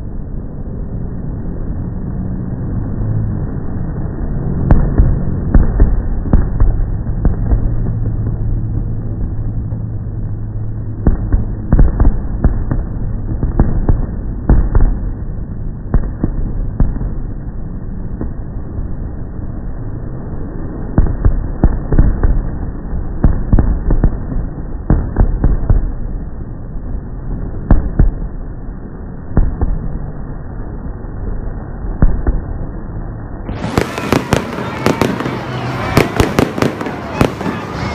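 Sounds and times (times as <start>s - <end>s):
low rumble: 0.0s - 37.9s
fireworks banging: 4.5s - 19.0s, 20.6s - 30.3s, 31.9s - 32.7s, 33.5s - 37.9s.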